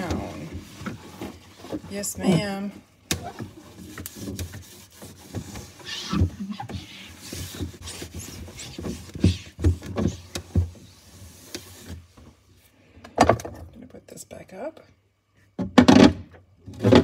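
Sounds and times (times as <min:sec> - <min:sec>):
cloth rubbing on glass shelf: 0:00.0 - 0:12.3.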